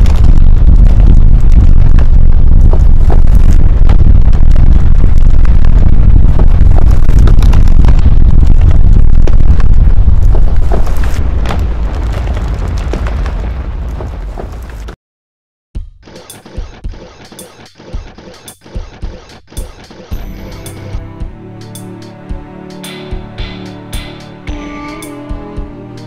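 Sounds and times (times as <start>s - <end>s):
heavy low rumble: 0.0s - 13.9s.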